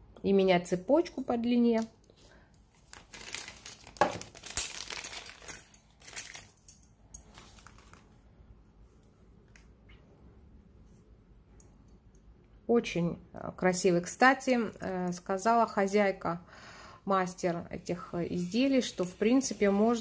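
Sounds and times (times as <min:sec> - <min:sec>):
faint room noise: 0:00.0 - 0:20.0
hands handling jewellery: 0:01.2 - 0:08.2.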